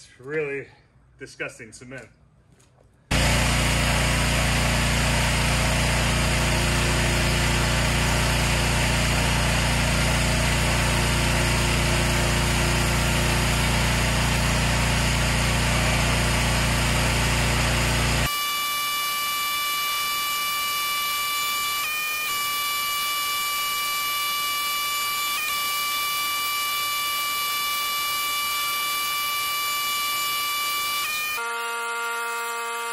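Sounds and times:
pressure washer spraying water: 3.1 - 18.2
machine hum: 3.1 - 32.9.

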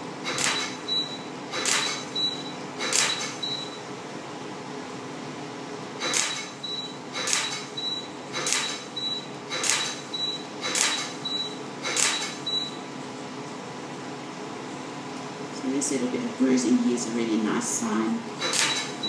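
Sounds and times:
laser pulse hissing snap: 1.5 - 2.0, 6.0 - 6.5, 10.6 - 11.1, 11.8 - 12.4.

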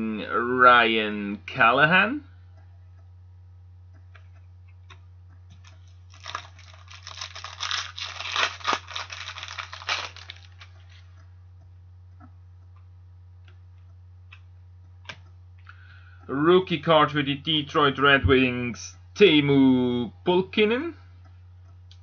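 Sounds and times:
foil wrapper tearing and crinkling: 5.5 - 11.0.

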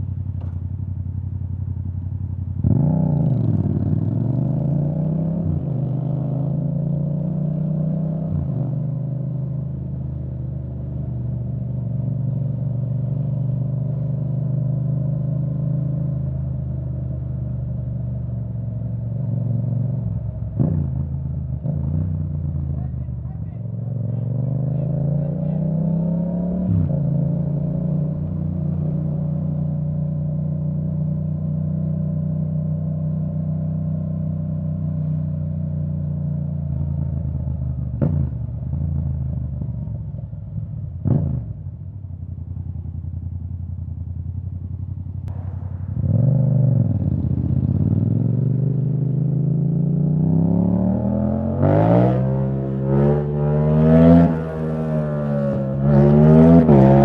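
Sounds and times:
motorcycle engine revving: 2.6 - 9.5, 19.3 - 39.9, 45.3 - 57.0.

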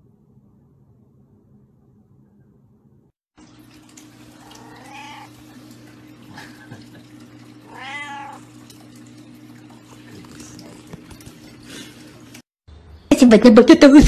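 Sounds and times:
cat meowing: 4.4 - 5.4, 7.7 - 8.5.

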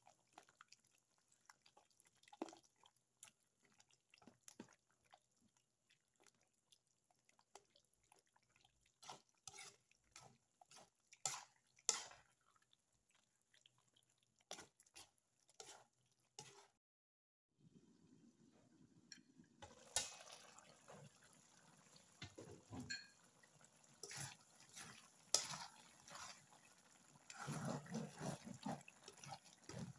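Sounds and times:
thick stew squelching: 0.0 - 16.8, 23.4 - 29.9
metal spoon scraping a pan: 9.0 - 12.3, 14.5 - 16.8, 24.0 - 29.9.

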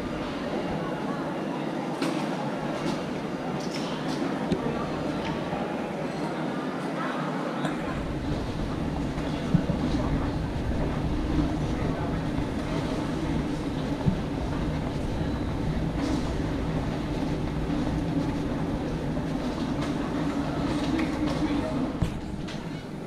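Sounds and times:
suitcase wheels rumbling: 7.9 - 22.7.

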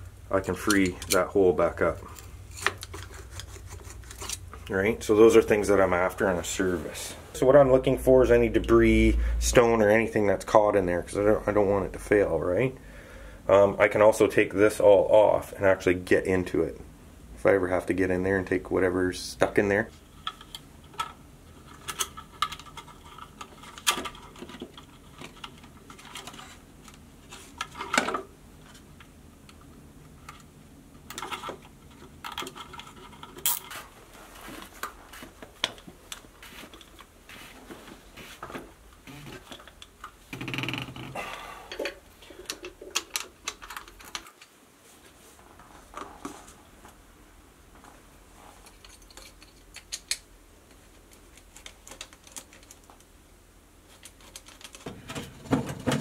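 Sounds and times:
scrape: 36.4 - 38.4
plastic and metal parts clicking: 41.7 - 44.5, 51.1 - 53.1, 54.0 - 56.0.

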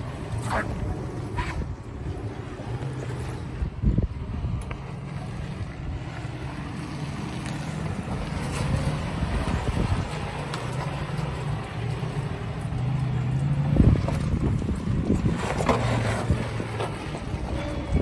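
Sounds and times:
suv engine running at low speed: 0.0 - 18.0
wind buffeting microphone: 0.0 - 18.0
knocks and scrapes: 13.5 - 17.8.

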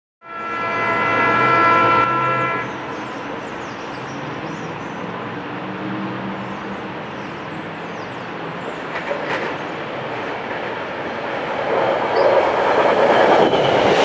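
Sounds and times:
train horn chord: 0.2 - 2.8
train rumbling: 0.3 - 14.0.

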